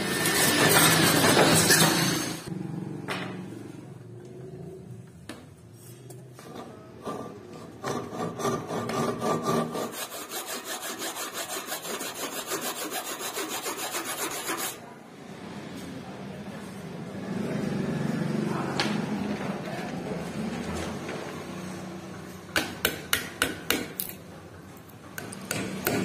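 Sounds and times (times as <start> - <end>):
handsaw sawing wood: 7.2 - 14.8.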